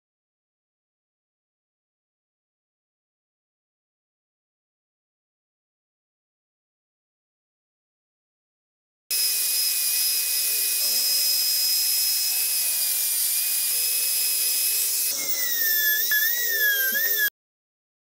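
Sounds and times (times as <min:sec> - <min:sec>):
angle grinder sanding wood: 0:09.1 - 0:17.3
electric drill boring wood: 0:09.1 - 0:17.3.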